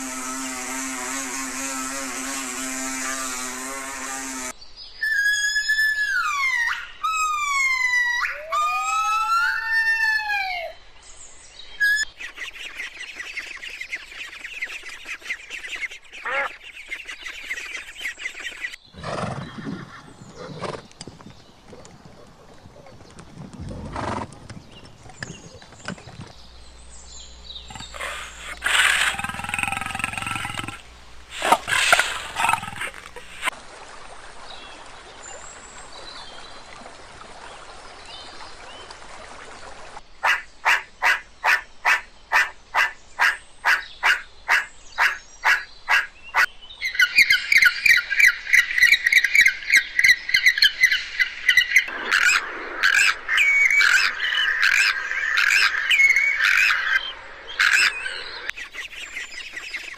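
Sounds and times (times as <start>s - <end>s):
bird calls: 11.7s - 33.5s, 40.2s - 59.9s
meerkat calling and chattering: 13.4s - 18.6s, 27.7s - 33.5s.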